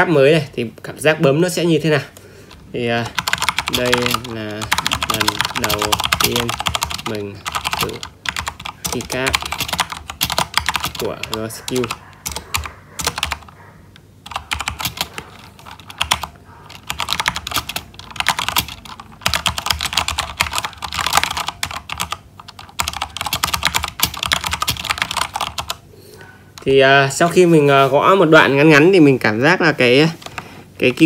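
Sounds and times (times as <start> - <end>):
fast typing on mechanical keyboard: 2.8 - 13.5, 14.2 - 25.8.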